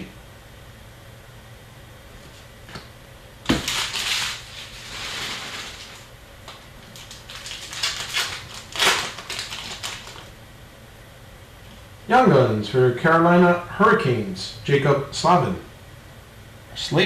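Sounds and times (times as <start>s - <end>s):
foil wrapper crinkling: 3.5s - 10.4s.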